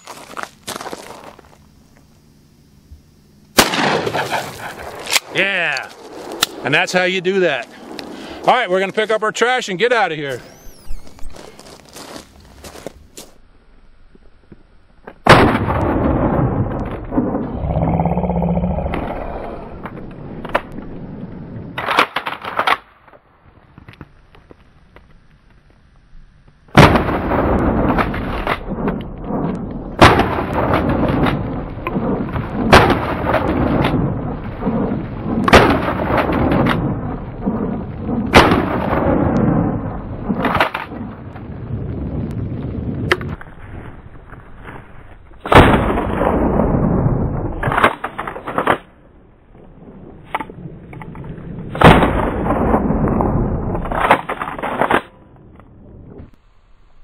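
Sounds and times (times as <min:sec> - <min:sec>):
shotgun blasts with echo: 0:03.6 - 0:05.6, 0:15.2 - 0:17.4, 0:30.0 - 0:41.1, 0:45.4 - 0:46.9, 0:51.7 - 0:54.2.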